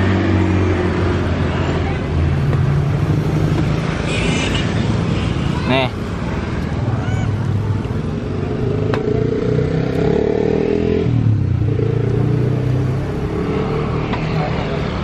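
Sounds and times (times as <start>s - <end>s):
vehicle engines running: 0.0s - 15.0s.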